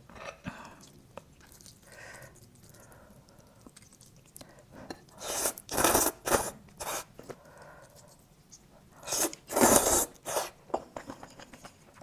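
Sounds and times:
person slurping: 5.1s - 7.1s, 9.0s - 10.6s.

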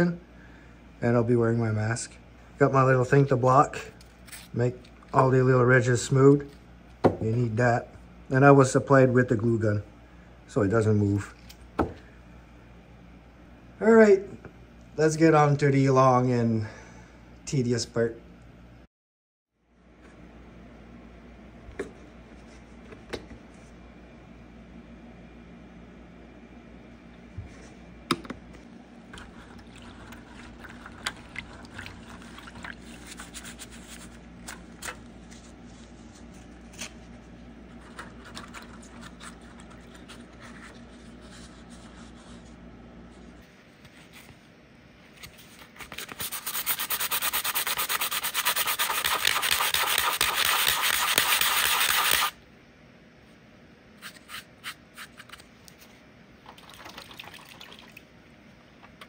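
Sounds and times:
sandpaper strokes: 46.0s - 52.4s.

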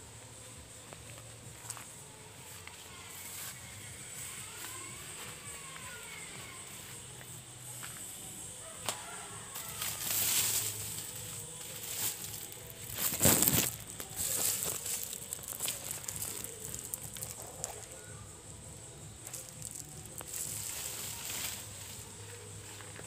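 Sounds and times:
plastic sack crinkling: 9.8s - 18.1s, 19.2s - 21.8s.

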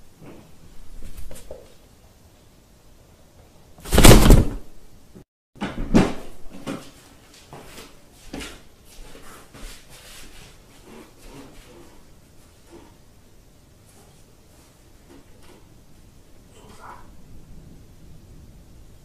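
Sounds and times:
loud thud on cardboard: 3.8s - 4.7s.

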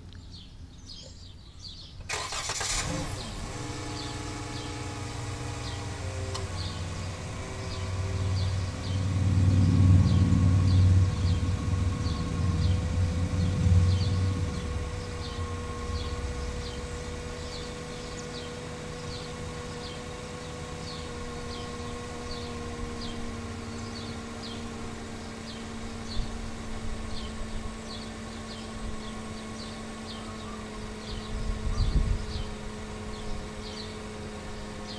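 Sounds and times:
car engine idling: 2.0s - 34.9s
low rumble: 7.0s - 18.2s.

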